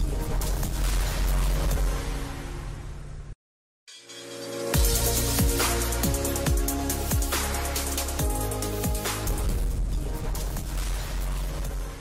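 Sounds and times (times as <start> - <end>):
crisp percussion: 3.9 - 11.8.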